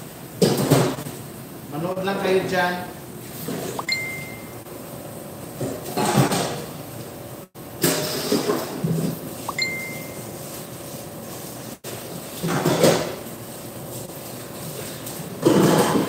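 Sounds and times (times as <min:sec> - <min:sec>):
dishes clattering in metal sink: 0:12.4 - 0:13.2, 0:15.4 - 0:16.0.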